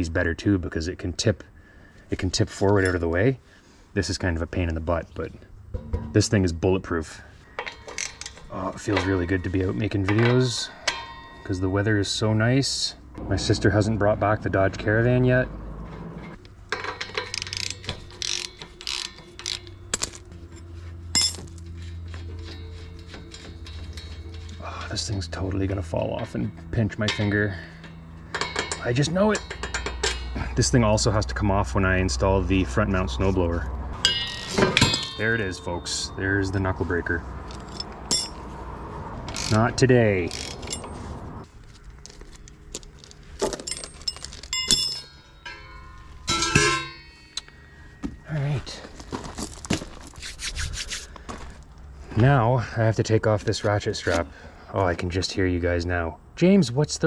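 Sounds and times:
metal parts clinking and knocking: 5.7s - 6.4s, 7.5s - 11.5s, 16.3s - 25.4s, 26.1s - 31.1s, 34.0s - 36.2s, 37.4s - 38.5s, 39.3s - 41.1s, 41.7s - 47.6s
socket wrench ratcheting: 16.7s - 20.3s, 39.3s - 39.6s
sharp metal clink: 21.1s - 21.6s, 26.2s - 30.9s, 34.0s - 38.5s, 43.4s - 47.8s.

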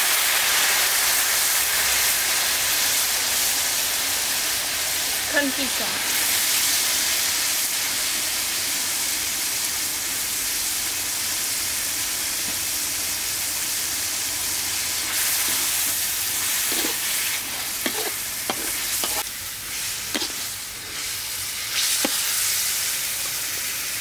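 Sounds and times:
meat sizzling in hot oil: 0.0s - 24.0s
metal spatula scraping pan: 15.2s - 19.3s, 20.1s - 21.0s.

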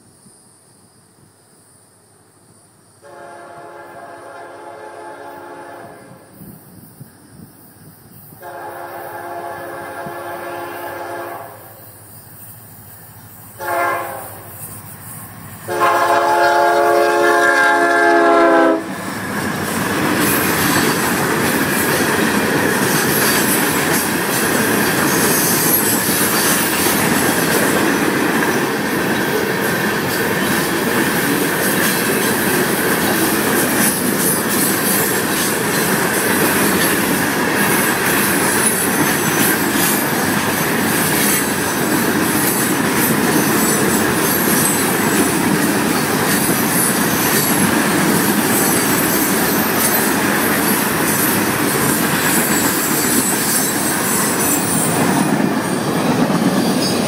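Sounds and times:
train passing rumble: 0.0s - 57.0s
locomotive air horn blasts: 3.0s - 6.2s, 8.4s - 11.8s, 13.6s - 14.6s, 15.7s - 19.0s.

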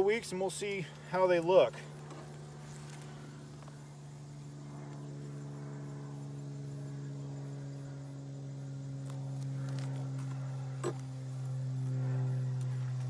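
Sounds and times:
low hum with overtones: 0.0s - 13.0s.

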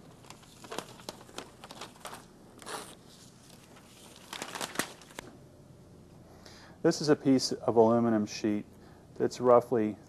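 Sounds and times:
tape crackling and tearing: 0.0s - 5.3s.

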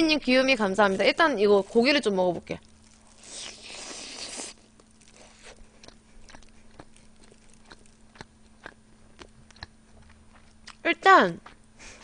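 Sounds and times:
wet mouth chewing smacks: 2.9s - 10.8s
person biting into chicken: 3.1s - 8.3s.

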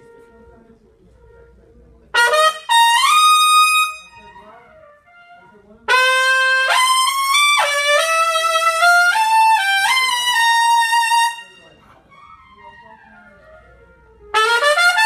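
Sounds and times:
trumpet playing solo: 1.3s - 11.7s, 13.8s - 15.0s.

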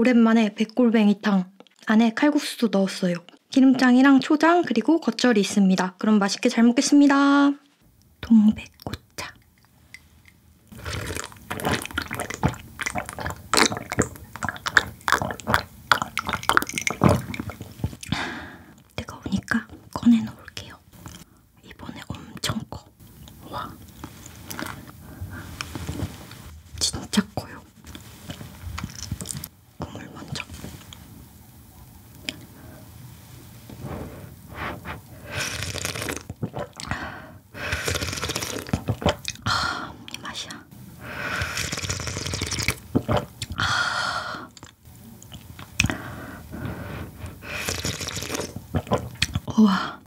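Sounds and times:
wet mouth clicks: 8.6s - 18.2s, 23.2s - 24.9s, 35.3s - 37.0s, 37.7s - 39.5s, 41.3s - 43.6s, 44.5s - 46.0s, 47.5s - 49.6s
person sipping and swallowing: 8.8s - 18.9s, 23.1s - 26.5s, 27.9s - 29.5s, 33.6s - 37.1s, 37.7s - 39.5s, 41.2s - 43.7s, 44.5s - 49.6s
person slurping broth: 10.7s - 17.8s, 33.7s - 39.2s, 41.0s - 43.3s, 45.8s - 49.2s
mouth clicks: 35.3s - 37.0s.

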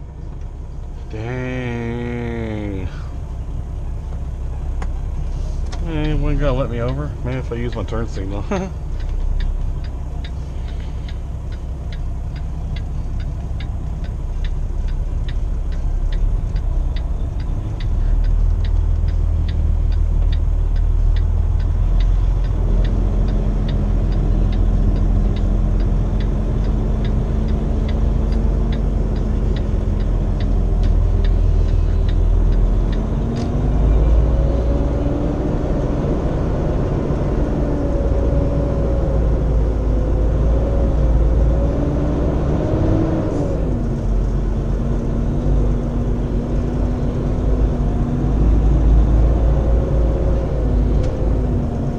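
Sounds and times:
diesel engine rumble: 0.0s - 51.9s
road noise: 0.0s - 51.9s
turn signal clicking: 5.6s - 35.8s, 42.8s - 51.9s.

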